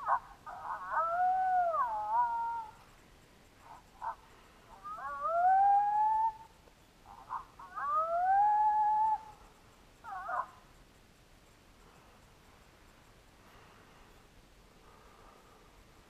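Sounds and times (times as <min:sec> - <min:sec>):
coyote yips and howls: 0:00.0 - 0:02.9, 0:03.6 - 0:10.7.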